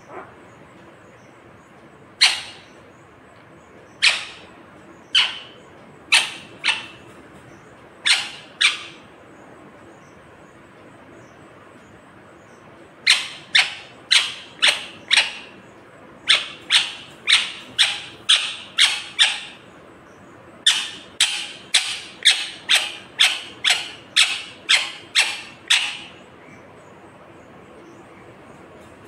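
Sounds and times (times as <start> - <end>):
parakeet squawking: 2.2 - 2.7, 4.0 - 4.5, 5.1 - 7.0, 8.0 - 9.0, 13.0 - 15.5, 16.3 - 19.6, 20.6 - 26.2.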